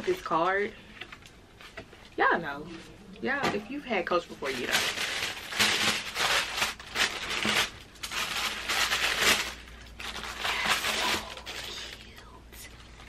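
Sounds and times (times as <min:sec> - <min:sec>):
tissue paper crinkling and rustling: 0:04.0 - 0:12.3.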